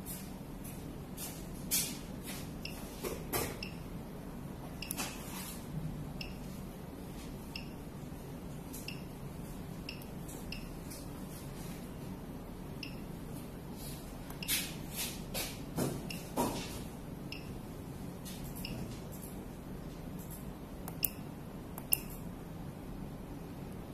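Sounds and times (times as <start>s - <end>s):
steady low hum: 0.0s - 23.9s
faint high machine beeps: 2.6s - 2.9s, 3.6s - 3.9s, 4.8s - 5.0s, 6.2s - 6.6s, 7.5s - 7.9s, 8.8s - 9.2s, 9.8s - 10.9s, 12.8s - 13.2s, 16.1s - 16.3s, 17.3s - 17.6s, 18.4s - 19.4s.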